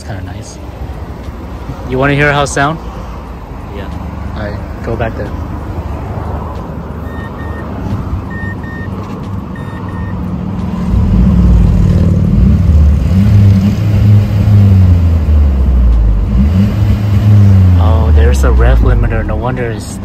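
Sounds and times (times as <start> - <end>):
car engine revving: 1.5 - 19.9
short electronic beeps: 7.0 - 7.7, 8.3 - 9.0, 9.6 - 10.2.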